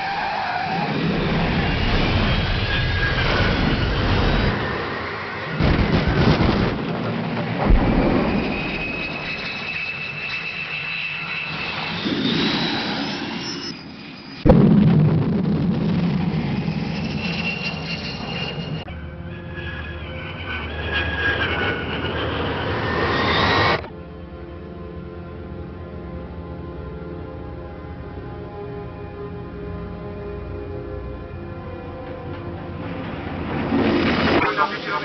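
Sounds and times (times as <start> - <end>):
whining jet-like effects: 0.0 - 23.9, 32.7 - 35.0.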